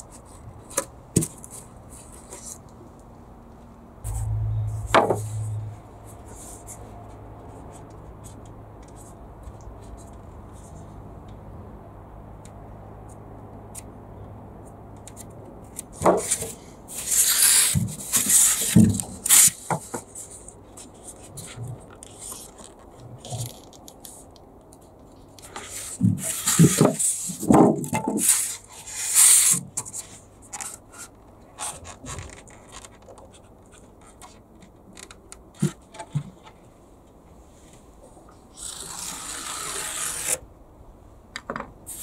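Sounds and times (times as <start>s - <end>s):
foam board scraping and rubbing: 16.0s - 23.6s, 25.5s - 32.5s, 38.5s - 40.4s.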